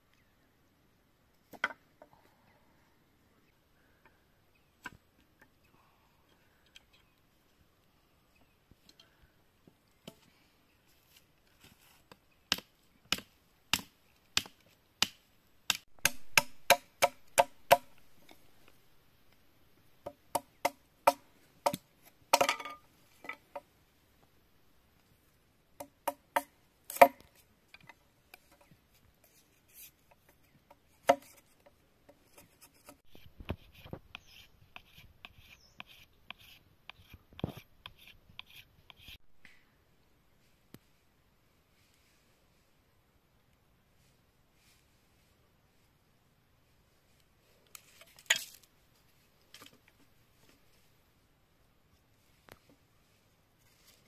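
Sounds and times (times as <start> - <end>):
machete chopping bamboo: 12.5 - 18.0, 25.8 - 27.3.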